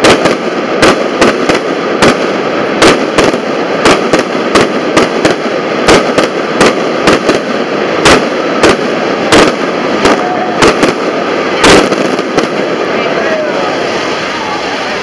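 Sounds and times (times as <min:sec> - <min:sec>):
fireworks banging: 0:00.0 - 0:15.0
steady noisy background: 0:00.0 - 0:15.0.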